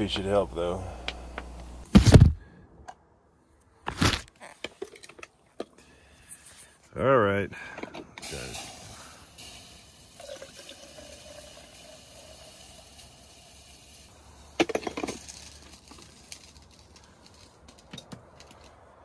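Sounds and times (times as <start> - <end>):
coffee pouring into a cup: 9.4 - 13.9.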